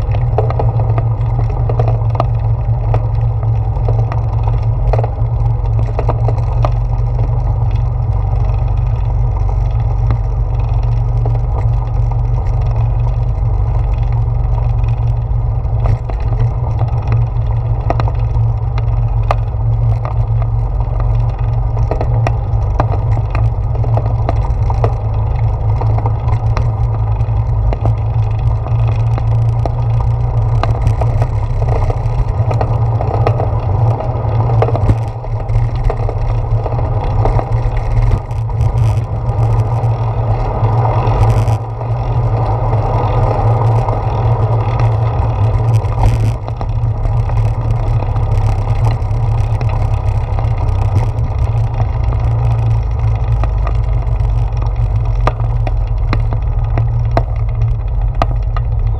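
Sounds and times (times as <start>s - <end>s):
bicycle tyres rolling on planks: 0.0s - 58.9s
wheels clicking over boards: 0.0s - 58.9s.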